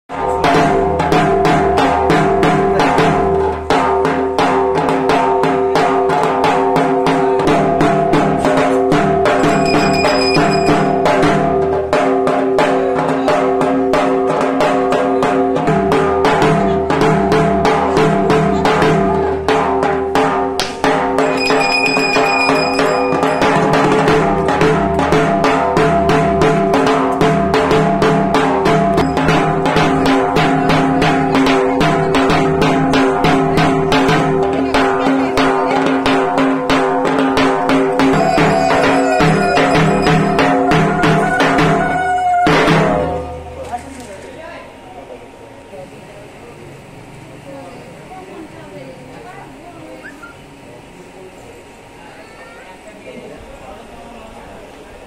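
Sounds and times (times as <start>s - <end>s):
barrel drum beating fast: 0.1s - 43.6s
music with held notes: 0.1s - 43.9s.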